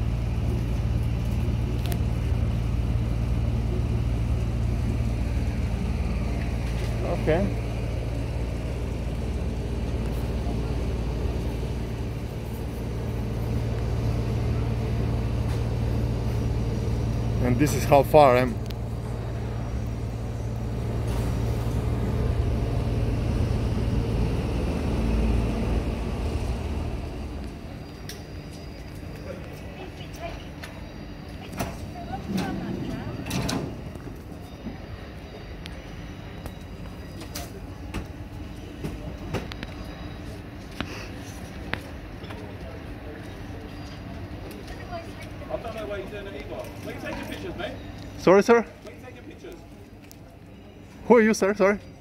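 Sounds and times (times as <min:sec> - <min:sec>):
vehicle engine idling: 0:00.0 - 0:51.3.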